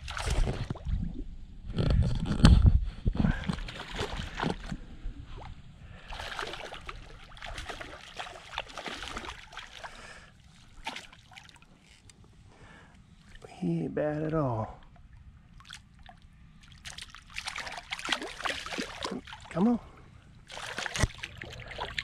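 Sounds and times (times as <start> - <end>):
fish thrashing and splashing water: 0.0 - 1.0, 3.4 - 4.8, 6.0 - 12.0, 14.9 - 19.6, 20.4 - 22.0.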